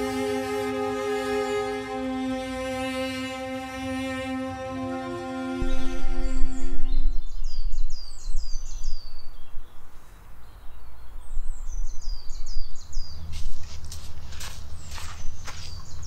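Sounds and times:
cello music: 0:00.0 - 0:07.4
songbird singing: 0:00.0 - 0:16.0
wind rumble on microphone: 0:05.6 - 0:16.0.

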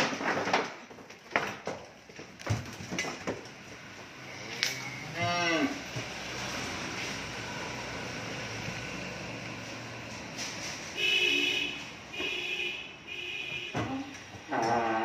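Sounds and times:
cow mooing: 0:05.1 - 0:05.8, 0:14.5 - 0:15.0.

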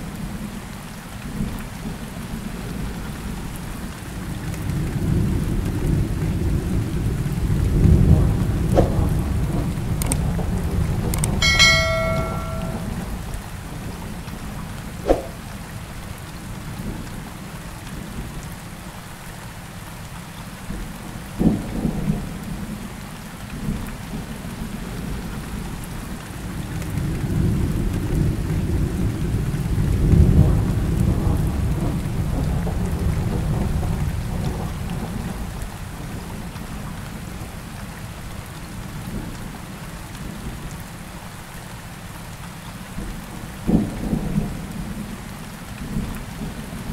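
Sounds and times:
steady rain: 0:00.0 - 0:46.9
thunder rumbling: 0:04.9 - 0:13.2.

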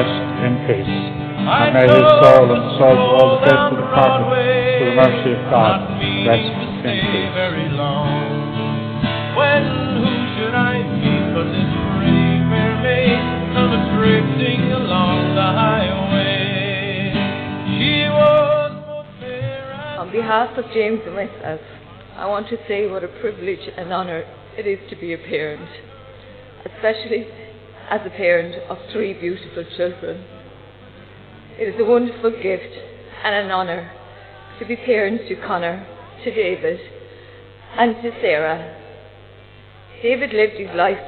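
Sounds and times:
country song with plucked guitar: 0:00.0 - 0:20.3.

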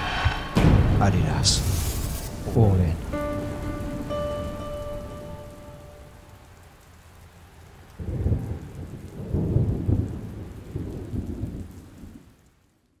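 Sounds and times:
rumbling thunder: 0:00.0 - 0:04.9, 0:08.0 - 0:12.4
rain falling: 0:00.0 - 0:13.0.

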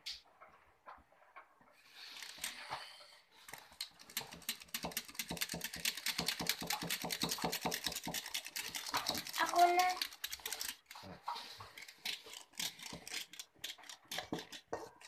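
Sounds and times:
utensil scraping metal bowl: 0:03.5 - 0:15.0.

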